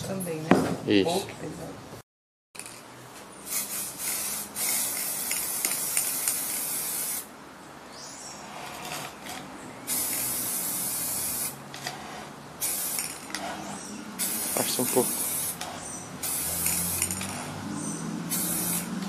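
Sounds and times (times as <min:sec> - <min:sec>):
spray-paint can hissing: 0:03.4 - 0:07.3, 0:09.9 - 0:11.6, 0:12.6 - 0:17.6, 0:18.2 - 0:19.0.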